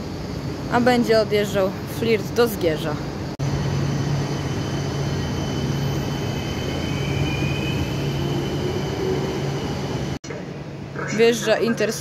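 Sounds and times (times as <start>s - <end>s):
electric train passing: 0.0s - 12.0s.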